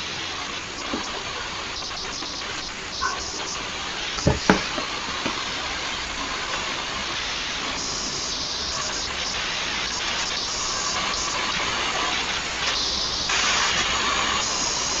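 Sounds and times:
background hiss: 0.0 - 15.0
short knocks: 4.2 - 4.8.

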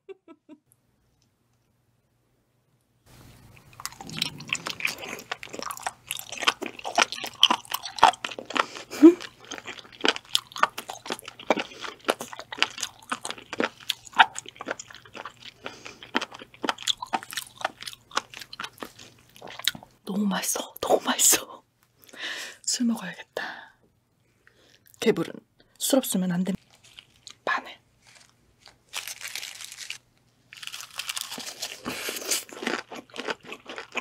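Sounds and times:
wet crunchy chewing: 3.4 - 19.9, 26.6 - 27.4, 28.0 - 34.0.

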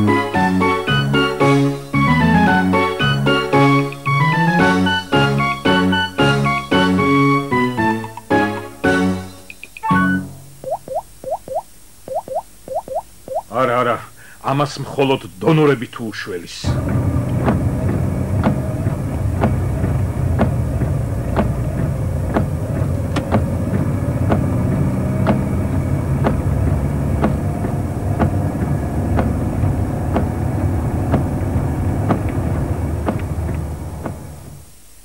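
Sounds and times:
sharp clicks: 9.5 - 9.9
low mechanical rumble: 16.7 - 34.8.

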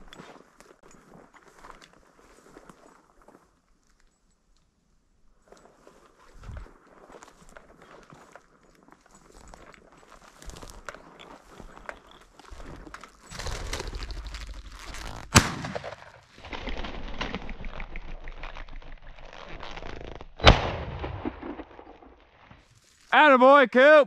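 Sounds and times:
footsteps through dry grass: 0.0 - 4.1, 5.3 - 17.2, 22.5 - 23.1
shotgun shot: 15.3 - 16.2, 20.4 - 22.1.

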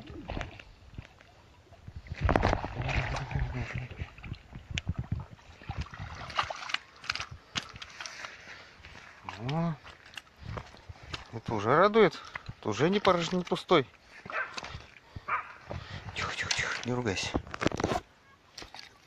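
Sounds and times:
fish splashing in water: 2.1 - 8.2.

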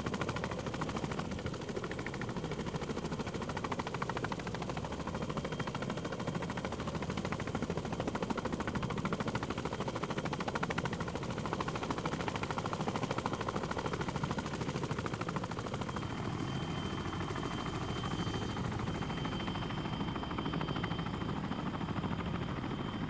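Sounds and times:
helicopter rotor beat: 0.0 - 23.0.

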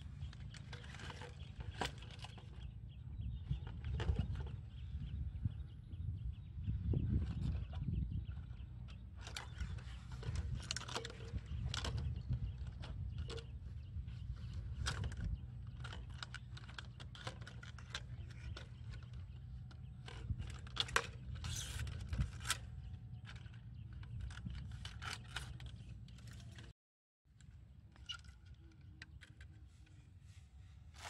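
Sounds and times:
plastic netting scraping and clicking: 0.2 - 2.7, 9.2 - 13.5, 14.4 - 26.7.

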